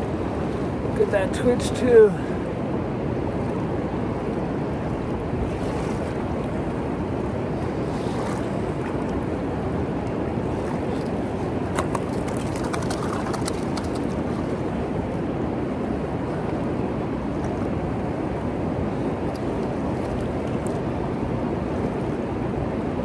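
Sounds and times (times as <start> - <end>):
wind on microphone: 0.0 - 23.0
fish splashing in water: 11.7 - 14.5.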